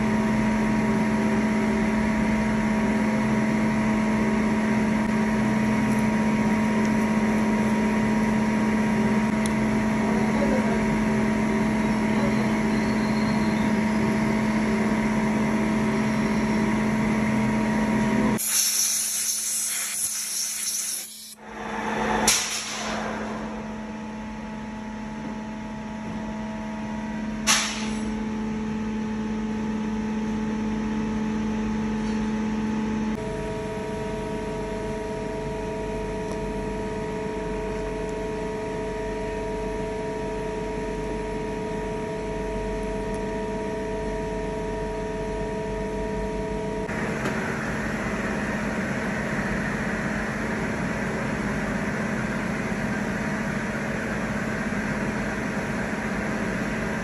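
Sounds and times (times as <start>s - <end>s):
sharp hiss: 18.4s - 21.4s.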